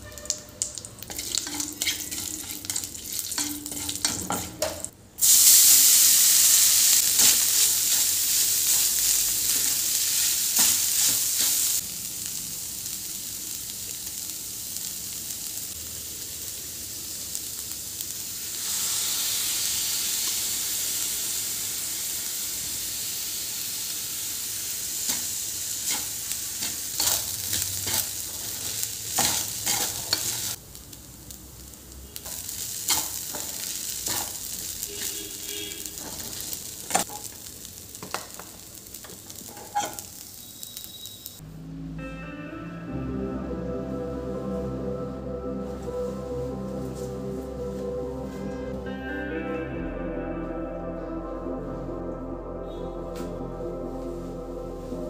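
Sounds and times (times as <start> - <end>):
loud oil sizzle: 0.0 - 41.4
spices frying in hot oil: 0.0 - 41.4.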